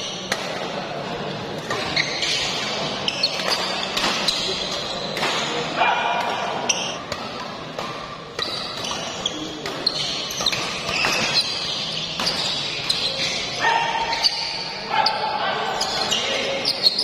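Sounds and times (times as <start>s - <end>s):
rackets hitting shuttlecock: 0.1s - 0.8s, 1.5s - 14.6s
shoes squeaking on court floor: 1.3s - 5.6s, 6.3s - 17.0s.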